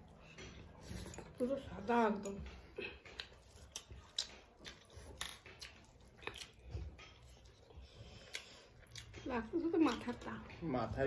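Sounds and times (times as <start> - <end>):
chewing and mouth smacks: 2.2 - 10.4.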